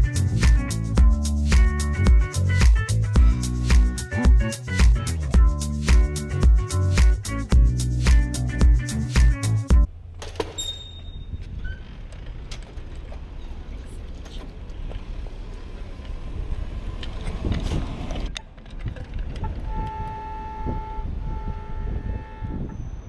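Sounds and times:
street traffic rumble: 0:00.0 - 0:23.0
vehicle horn honking: 0:19.4 - 0:23.0.

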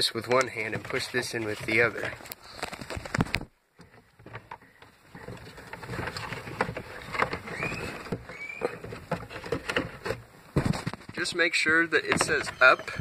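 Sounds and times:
short squeaks: 0:06.9 - 0:09.0, 0:12.0 - 0:13.0.

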